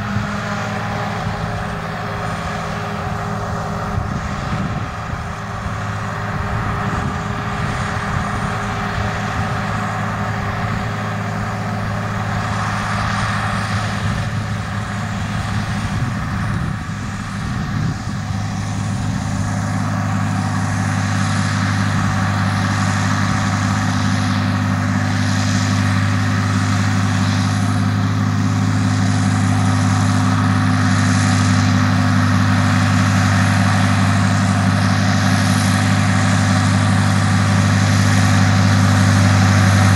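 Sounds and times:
tractor diesel engine under load: 0.0s - 39.9s.

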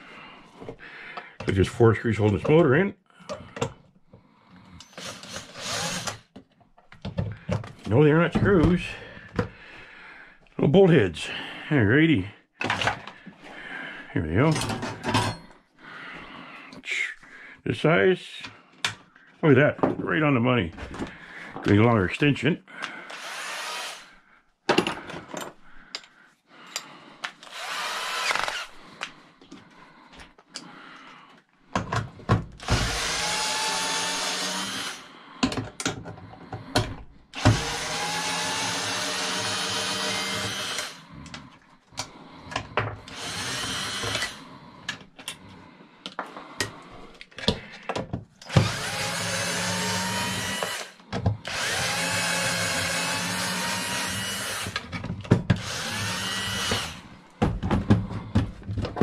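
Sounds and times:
power drill whining: 4.8s - 6.4s, 22.8s - 24.2s, 27.4s - 28.9s, 32.6s - 35.1s, 36.5s - 41.4s, 42.0s - 44.6s, 48.4s - 57.3s
handling knocks and clicks: 35.4s - 37.1s, 57.4s - 59.0s.

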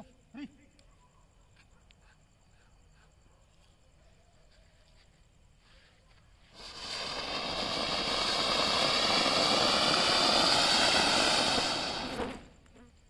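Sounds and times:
firework fountain hissing: 6.4s - 12.7s.

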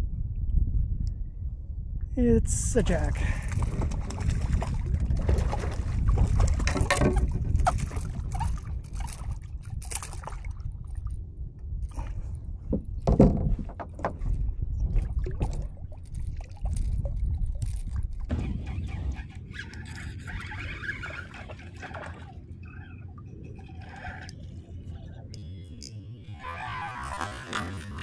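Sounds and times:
water sloshing: 3.3s - 11.2s, 12.9s - 25.9s
fish thrashing and splashing: 3.4s - 11.0s, 19.8s - 24.5s.

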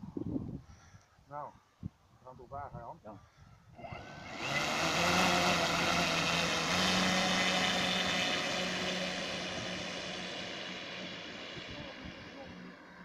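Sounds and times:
model aircraft engine revving: 3.8s - 13.0s.

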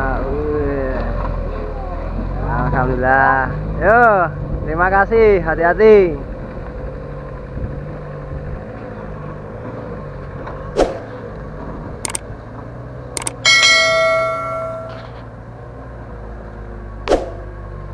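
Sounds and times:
truck engine running low: 0.0s - 17.9s
sharp clicks: 13.2s - 15.0s
bell ding: 13.2s - 15.2s.

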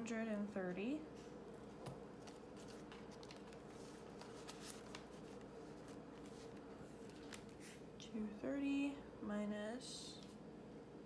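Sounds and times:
low steady hum: 0.0s - 11.0s
paper banknotes rustling: 1.7s - 7.8s.

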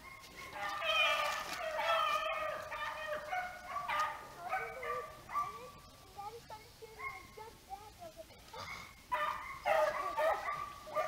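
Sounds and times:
dogs baying: 0.0s - 5.8s, 8.7s - 11.0s.

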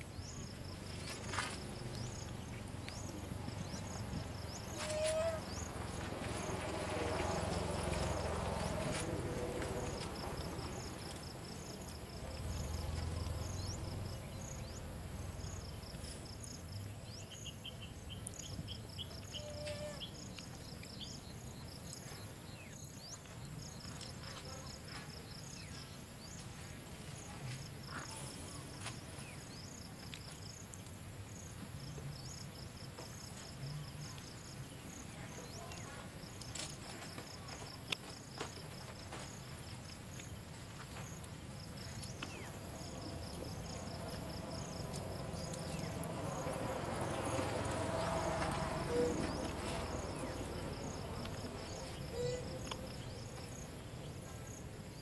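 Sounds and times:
low outdoor rumble: 0.0s - 17.2s, 33.5s - 55.0s
insects chirping: 0.0s - 55.0s.

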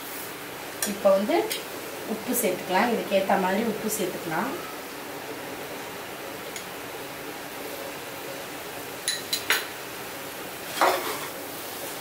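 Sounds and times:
spatula scraping and clattering: 10.7s - 11.4s.

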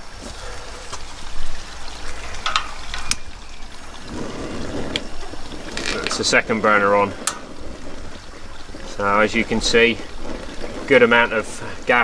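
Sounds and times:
flame rushing: 3.7s - 12.0s
gas burner hissing: 3.8s - 12.0s.

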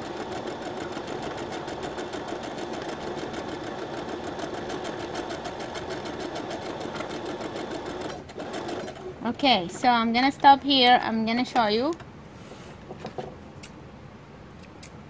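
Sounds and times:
sewing machine stitching: 0.0s - 9.2s.

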